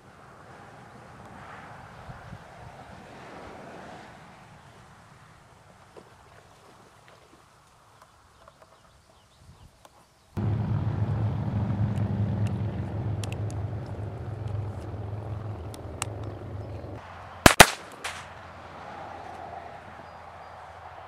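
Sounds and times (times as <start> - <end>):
steady low rumble: 10.4 - 17.0
blank pistol shots: 17.4 - 18.3.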